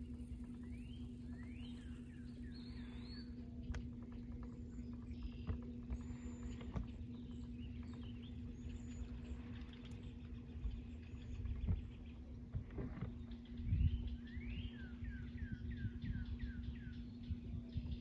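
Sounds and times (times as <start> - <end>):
low hum and rumble: 0.0 - 18.0
small birds chirping: 0.0 - 18.0.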